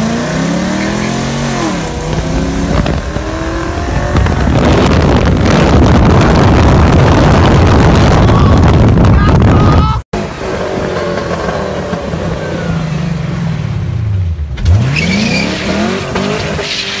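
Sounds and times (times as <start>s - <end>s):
car engine accelerating hard: 0.0s - 9.1s
wind rush: 1.2s - 10.0s.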